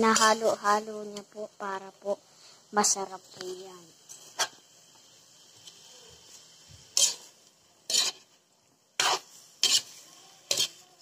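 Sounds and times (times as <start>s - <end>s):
metal spoon scraping a wok: 0.0s - 0.7s, 4.0s - 4.7s, 6.9s - 8.4s, 9.0s - 11.0s.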